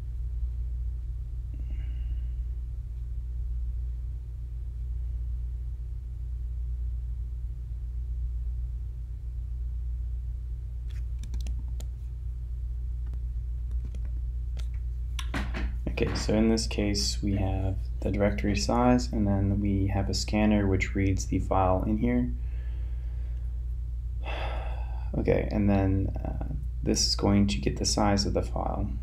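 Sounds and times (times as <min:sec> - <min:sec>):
low room hum: 0:00.0 - 0:29.0
mouse and keyboard clicks: 0:10.9 - 0:11.9.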